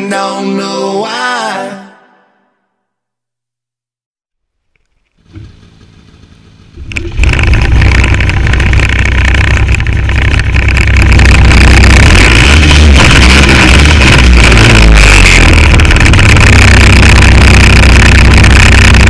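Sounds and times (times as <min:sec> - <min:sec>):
snowmobile engine running: 0:05.2 - 0:19.0.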